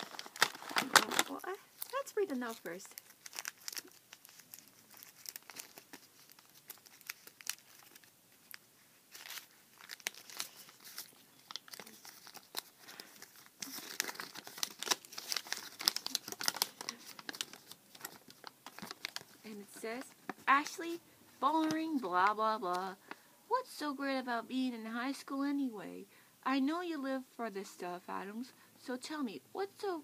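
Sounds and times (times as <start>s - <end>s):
paper crinkling and rustling: 0.0s - 22.3s.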